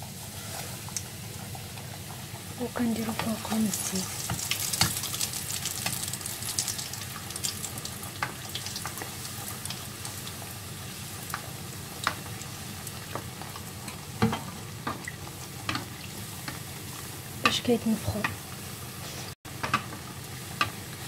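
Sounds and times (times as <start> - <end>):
hot oil sizzling: 0.0 - 21.0
oil popping and crackling: 2.7 - 17.6.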